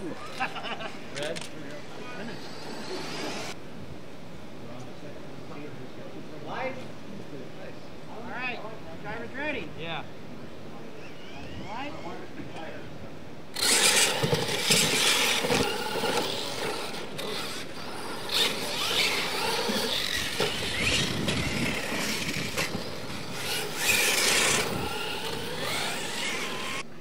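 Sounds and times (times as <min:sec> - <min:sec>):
electric motors whining: 0:00.0 - 0:03.6, 0:10.8 - 0:12.7, 0:13.5 - 0:26.9
tires scrabbling on dirt: 0:13.6 - 0:26.9.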